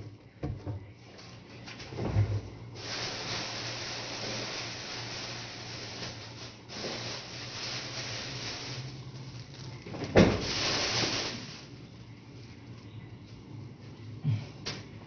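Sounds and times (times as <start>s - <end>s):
steady hissing: 2.7s - 12.1s.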